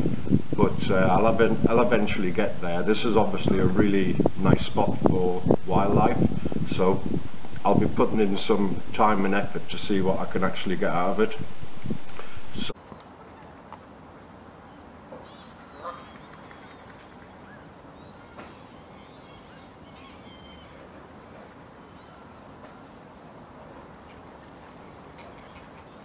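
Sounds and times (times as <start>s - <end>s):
steady background hiss: 12.5s - 26.0s
distant birds calling: 12.8s - 26.0s.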